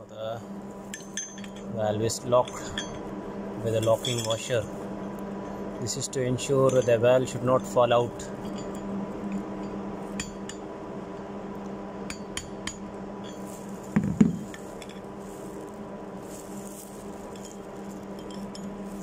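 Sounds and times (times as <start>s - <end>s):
steady hum: 0.0s - 19.0s
heavy metal knock: 14.0s - 14.4s.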